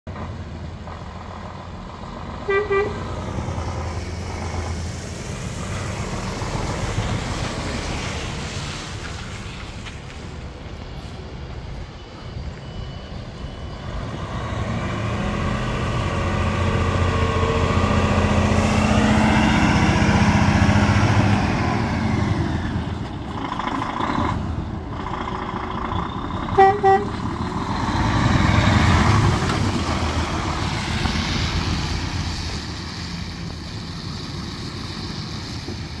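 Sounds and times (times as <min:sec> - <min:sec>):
diesel truck engine pulling away: 0:00.1 - 0:11.4, 0:12.8 - 0:36.0
truck horn toots: 0:02.4 - 0:03.1, 0:26.6 - 0:27.2.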